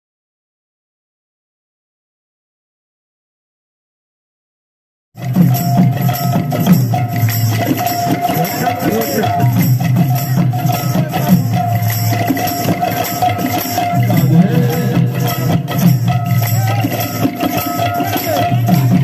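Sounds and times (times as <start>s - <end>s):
hand drums beating rhythm: 5.2s - 19.0s
held tone: 5.2s - 19.0s
jingling metal percussion: 5.2s - 19.0s.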